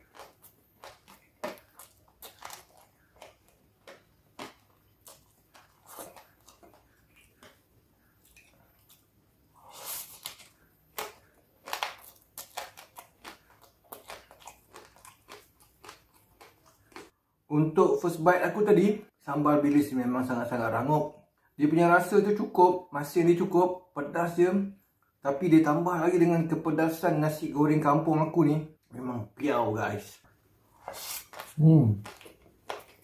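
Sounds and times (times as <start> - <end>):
crisp crackles: 0.0 - 7.6, 9.8 - 17.1
chewing and crunching food: 0.0 - 17.2, 30.7 - 33.0.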